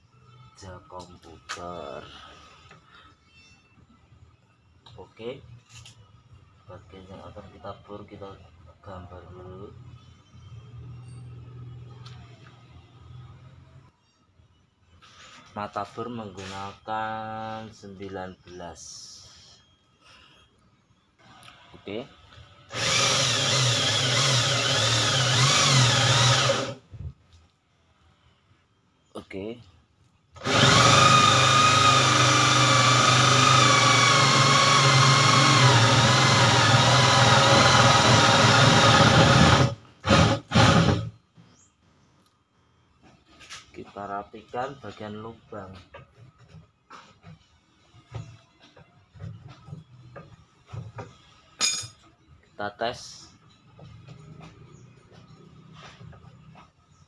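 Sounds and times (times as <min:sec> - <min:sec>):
electric drill boring wood: 0:22.7 - 0:26.8, 0:30.4 - 0:41.1.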